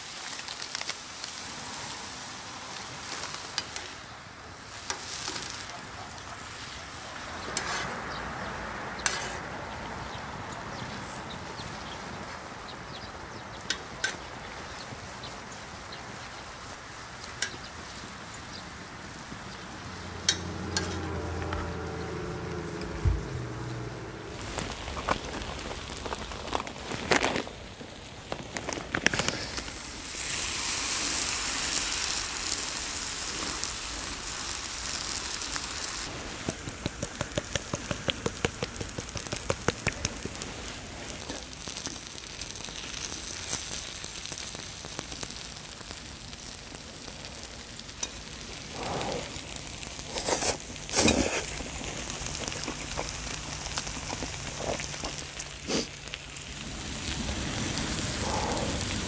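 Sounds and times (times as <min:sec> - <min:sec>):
food sizzling in griddle pan: 0:00.0 - 0:27.3, 0:29.3 - 0:59.0
metal tongs clicking against pan: 0:20.2 - 0:21.0.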